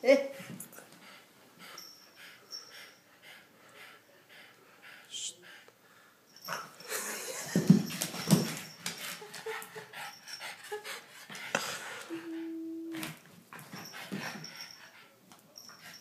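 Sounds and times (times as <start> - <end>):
steady held tone: 12.1 - 13.1.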